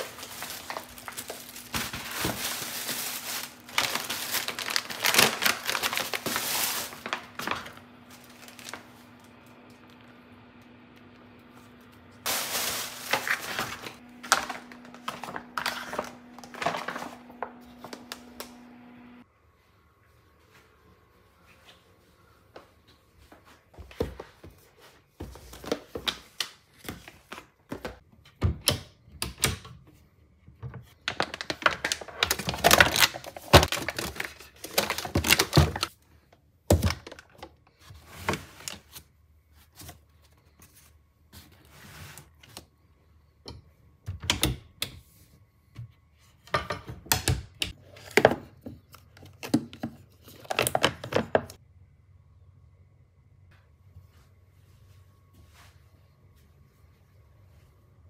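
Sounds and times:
boxes and pouches clacking and rustling: 0.0s - 8.8s, 12.3s - 17.1s, 31.0s - 35.9s.

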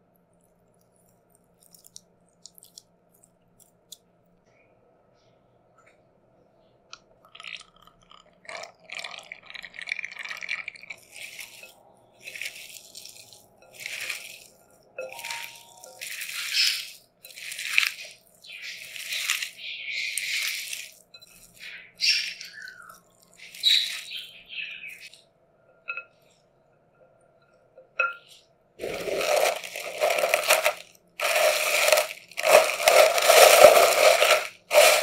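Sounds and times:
crisp scratchy strokes: 11.0s - 21.0s, 28.8s - 35.0s.

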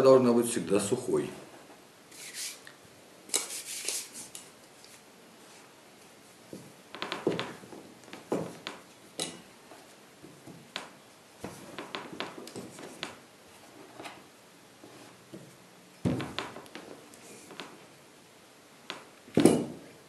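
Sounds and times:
rolling pin knocking on wooden board: 6.6s - 8.8s, 15.3s - 16.9s.

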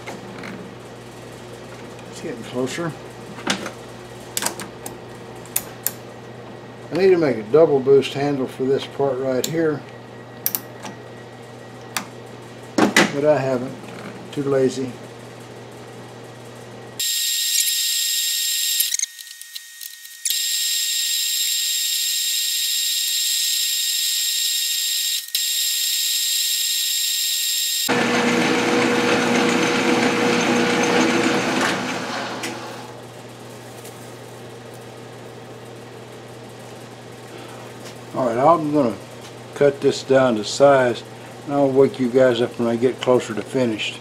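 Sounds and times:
lathe cutting metal whine: 27.8s - 32.9s
lathe motor humming: 27.9s - 33.0s.

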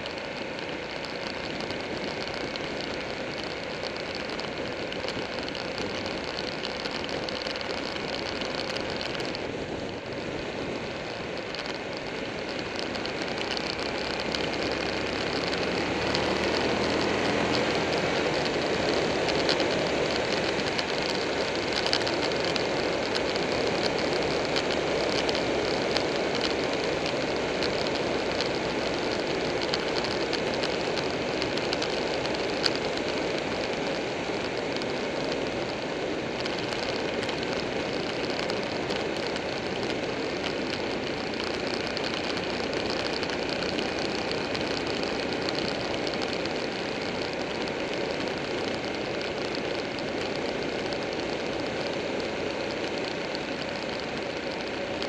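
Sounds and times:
motorcycle engine drone: 0.0s - 55.0s
sharp tick: 11.0s - 55.0s.

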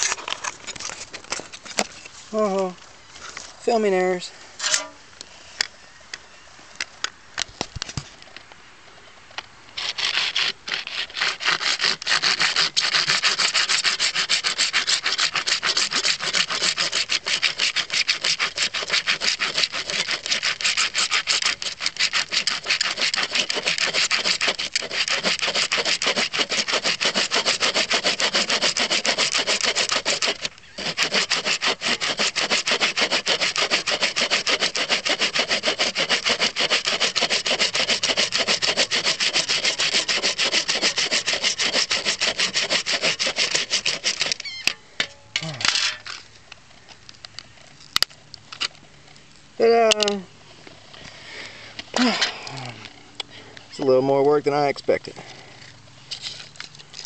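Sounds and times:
handsaw sawing plastic: 9.8s - 44.4s.

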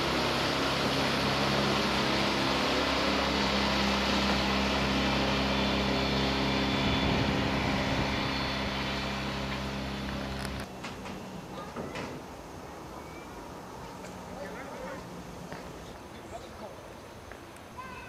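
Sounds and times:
outboard motor boat passing: 0.0s - 18.0s.

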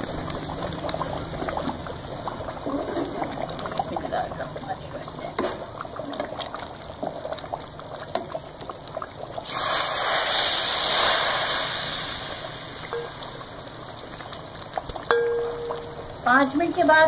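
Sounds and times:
hot oil crackling and sizzling: 0.0s - 17.0s.

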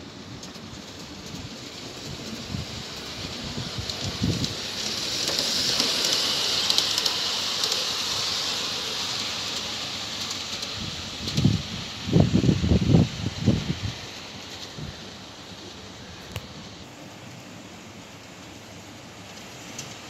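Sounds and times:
model train running on track: 0.0s - 20.0s
wind buffeting microphone: 1.0s - 5.2s, 10.6s - 14.1s.

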